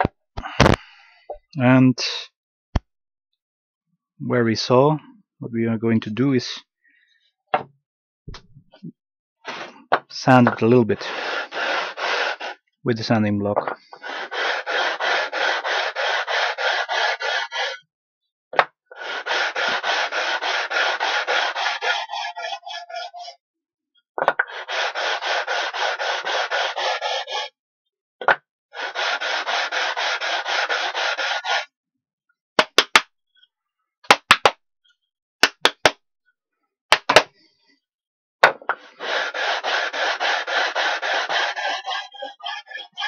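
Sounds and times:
sanding block rubbing wood: 11.0s - 12.6s, 13.9s - 17.8s, 19.0s - 23.4s, 24.4s - 27.5s, 28.8s - 31.7s, 38.8s - 43.0s.

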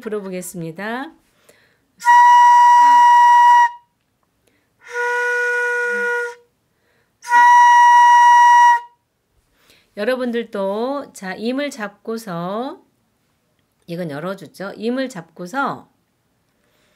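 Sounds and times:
bamboo flute long notes: 2.0s - 3.9s, 4.8s - 6.5s, 7.2s - 9.0s.

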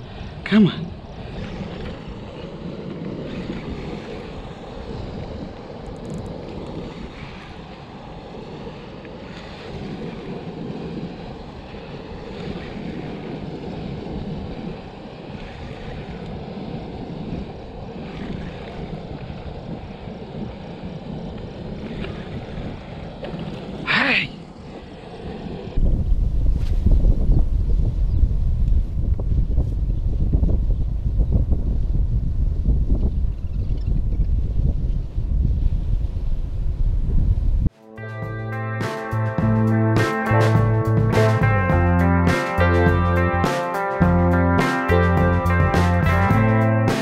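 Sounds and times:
wind noise on microphone: 0.0s - 23.8s, 24.9s - 37.7s
flowing water rushing: 0.0s - 25.8s.

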